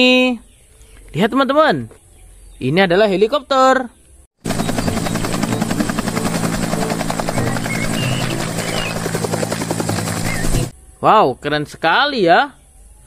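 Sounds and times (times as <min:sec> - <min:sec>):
helicopter engine drone: 0:04.4 - 0:10.7
helicopter rotor chopping: 0:04.4 - 0:10.7.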